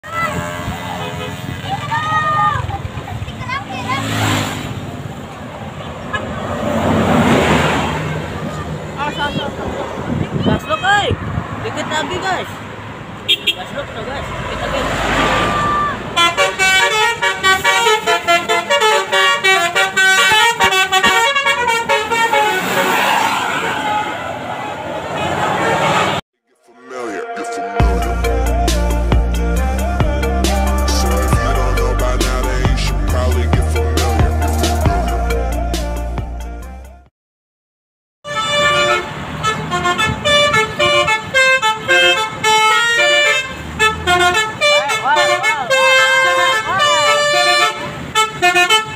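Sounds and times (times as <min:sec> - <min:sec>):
multi-trumpet bus horn tune: 0:00.0 - 0:02.3, 0:13.3 - 0:13.7, 0:15.6 - 0:23.0, 0:25.1 - 0:26.2, 0:26.8 - 0:36.7, 0:38.2 - 0:48.9
road traffic noise: 0:00.0 - 0:37.1, 0:38.2 - 0:48.9.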